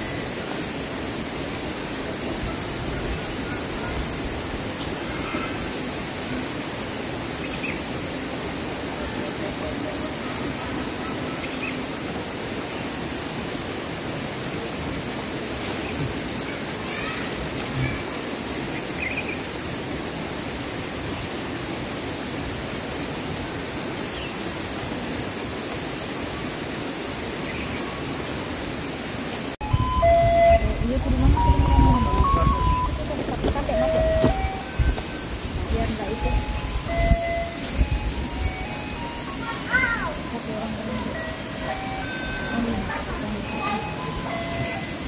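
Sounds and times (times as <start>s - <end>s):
high-pitched insect chorus: 0.0s - 45.0s.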